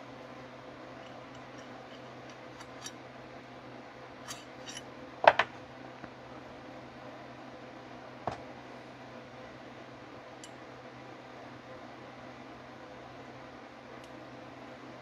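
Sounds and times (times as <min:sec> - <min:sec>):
steady low hum: 0:00.0 - 0:15.0
metal parts clicking and clinking: 0:01.0 - 0:03.0, 0:04.2 - 0:04.8.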